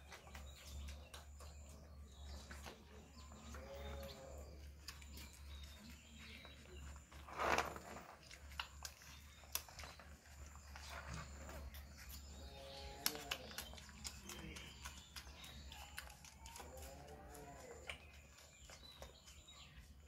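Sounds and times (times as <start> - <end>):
puppies suckling: 0.0 - 20.0.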